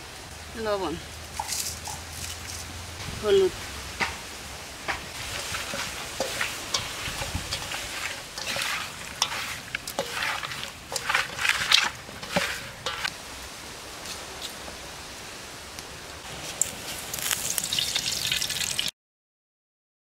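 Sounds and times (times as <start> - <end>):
fish pieces mixed by hand: 5.1 - 13.1.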